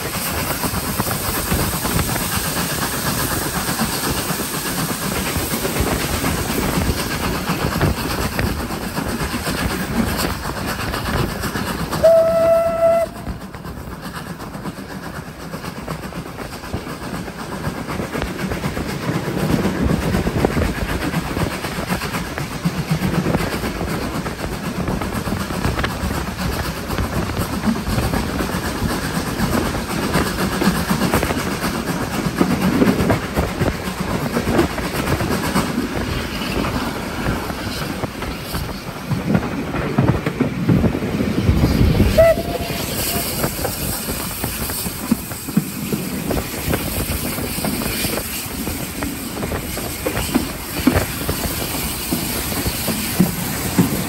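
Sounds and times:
train running on rails: 0.0 - 54.0
steam whistle blast: 12.0 - 13.3, 42.1 - 43.4.

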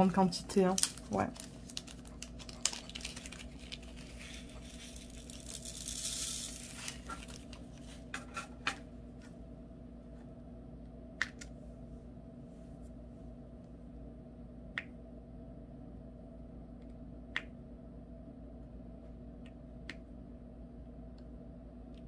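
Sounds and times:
plastic bag rustling: 0.3 - 8.1.

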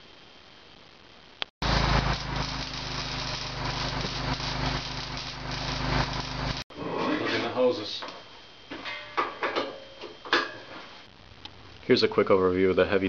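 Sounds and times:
arc welding crackle: 0.0 - 6.7, 10.9 - 12.0
low electrical hum: 0.0 - 13.0.

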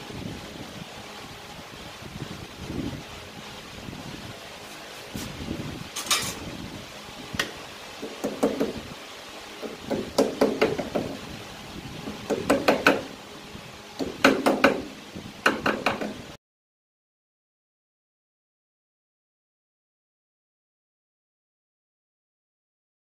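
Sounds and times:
knocks on metal chuck: 14.0 - 16.2.

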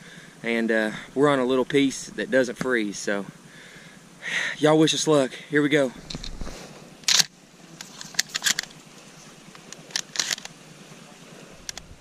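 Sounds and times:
shotgun scrape: 6.0 - 8.8, 9.6 - 10.5
shells clicking into magazine: 7.1 - 7.3, 8.0 - 8.7, 9.8 - 10.5.

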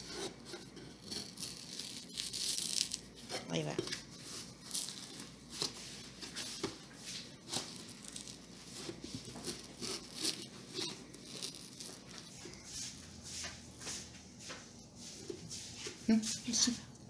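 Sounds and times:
cardboard and tape tearing: 1.0 - 3.0, 7.5 - 12.3.

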